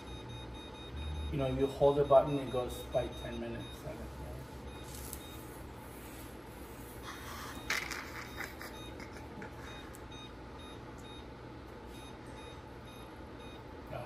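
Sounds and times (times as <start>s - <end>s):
oven control panel beeping: 0.0s - 5.5s, 8.3s - 9.0s, 9.6s - 14.0s.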